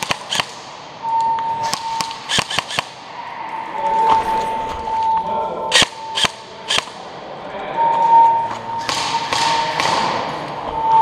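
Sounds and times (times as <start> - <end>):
airsoft rifle shots: 0.0 - 0.9, 1.6 - 3.1, 5.7 - 7.0.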